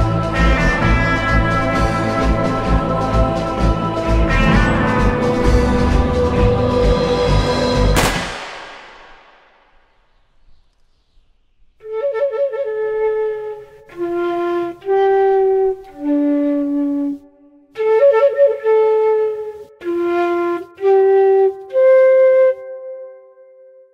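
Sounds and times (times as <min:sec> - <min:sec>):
solo flute melody: 0:11.8 - 0:23.9.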